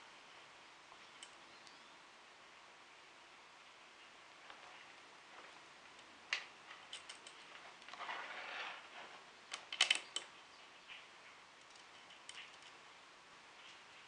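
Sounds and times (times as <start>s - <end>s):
scraping rustle of wires: 4.4s - 11.1s.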